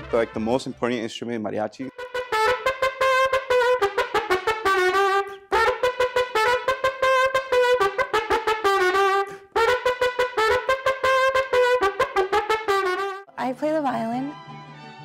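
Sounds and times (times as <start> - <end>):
trumpet playing: 1.9 - 13.4.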